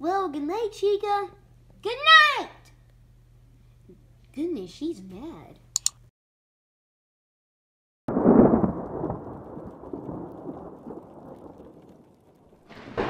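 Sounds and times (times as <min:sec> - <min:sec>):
thunder clap rumbling: 0:08.1 - 0:13.0.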